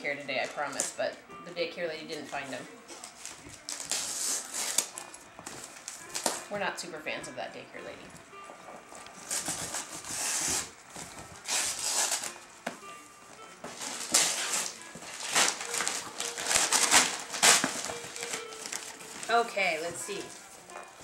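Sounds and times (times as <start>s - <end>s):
wrapping paper tearing and crinkling: 2.3s - 6.5s, 9.2s - 12.4s, 13.7s - 21.0s.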